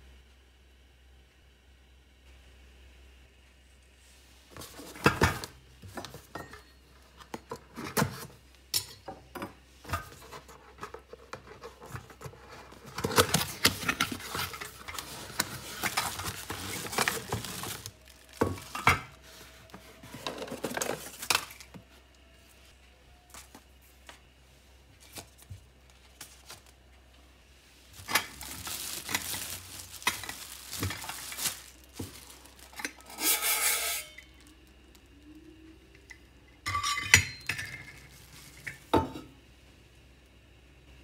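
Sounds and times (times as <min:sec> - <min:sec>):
cellophane crinkling and scraping: 0:04.5 - 0:08.4, 0:09.8 - 0:22.7, 0:24.9 - 0:35.4, 0:37.8 - 0:38.9.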